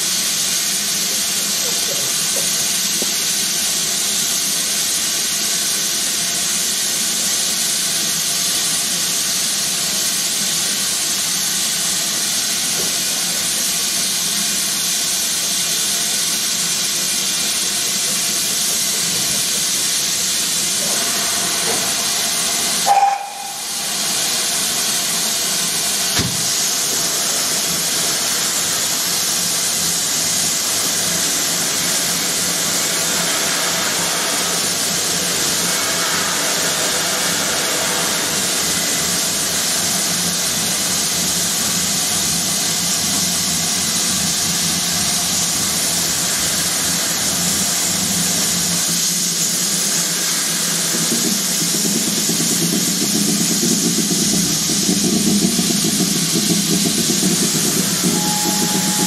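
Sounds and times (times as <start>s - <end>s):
steam hissing: 0.0s - 59.0s
steam whistle toot: 22.8s - 23.9s, 57.9s - 59.0s.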